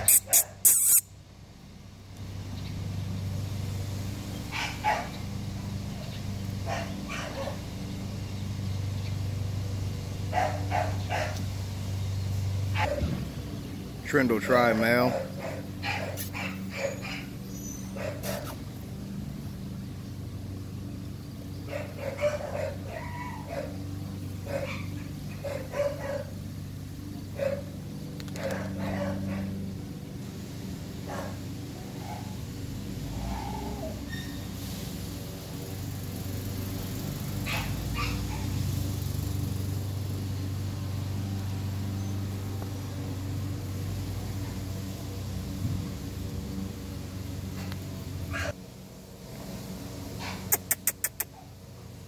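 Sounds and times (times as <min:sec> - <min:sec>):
dogs barking: 0:00.0 - 0:01.0, 0:04.4 - 0:05.5, 0:06.6 - 0:07.8, 0:10.2 - 0:11.5, 0:12.6 - 0:13.2, 0:14.7 - 0:18.6, 0:21.6 - 0:26.5, 0:27.2 - 0:29.9, 0:31.0 - 0:32.5, 0:37.4 - 0:38.8, 0:47.5 - 0:48.6, 0:50.1 - 0:51.6
low motor hum: 0:01.1 - 0:50.6.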